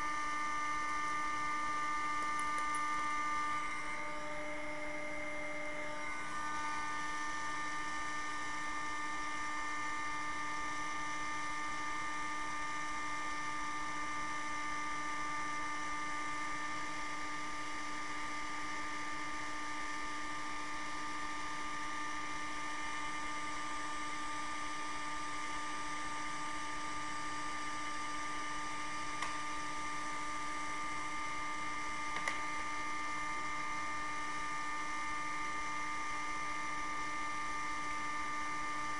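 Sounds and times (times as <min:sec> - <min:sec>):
heat gun fan humming: 0:00.0 - 0:08.5, 0:27.5 - 0:34.2.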